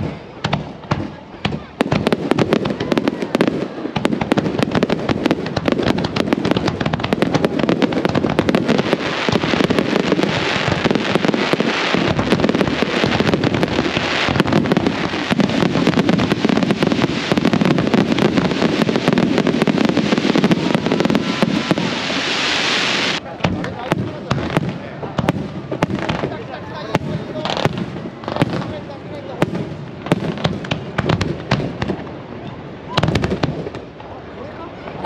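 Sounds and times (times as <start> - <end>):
fireworks rapid bangs: 0.0 - 32.2, 32.9 - 33.9.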